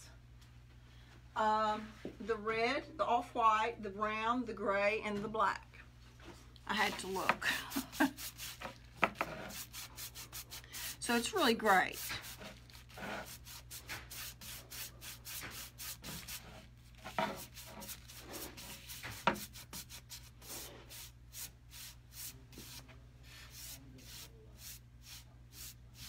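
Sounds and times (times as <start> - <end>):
paintbrush strokes on wood: 6.8 - 26.0.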